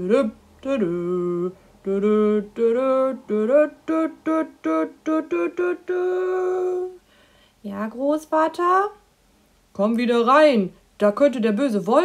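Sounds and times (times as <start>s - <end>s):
person singing wordless tune: 0.0s - 9.0s.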